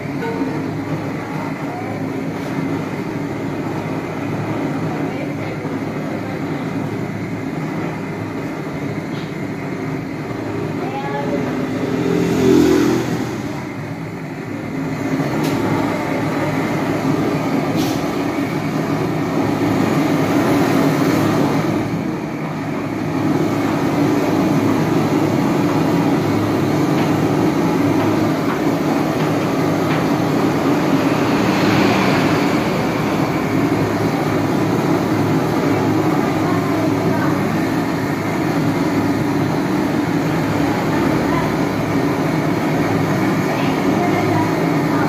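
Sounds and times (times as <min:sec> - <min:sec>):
gas torch flame rushing: 0:17.0 - 0:36.8.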